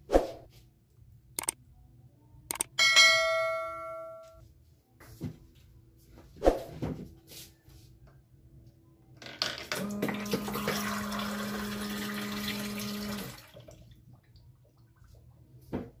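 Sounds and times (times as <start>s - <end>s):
pump humming: 9.7s - 13.6s
water pouring into a glass: 9.8s - 14.4s.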